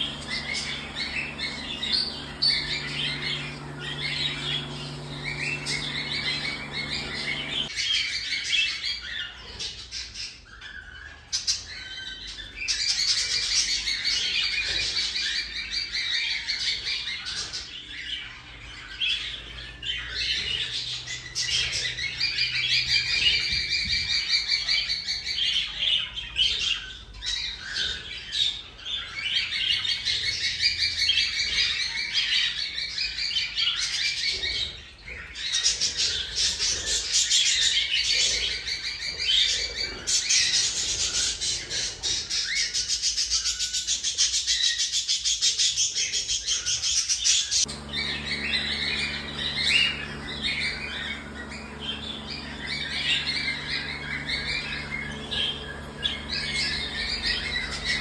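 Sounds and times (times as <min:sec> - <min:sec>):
cockatiel rapid pulsing chirps: 0:00.0 - 0:07.7, 0:47.7 - 0:58.0.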